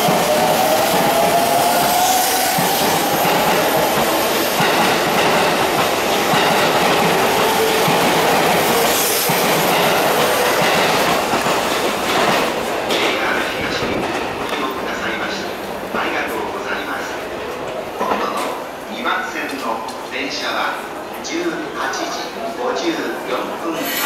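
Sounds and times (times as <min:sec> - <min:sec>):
wheels clickety-clack: 0:02.5 - 0:14.7.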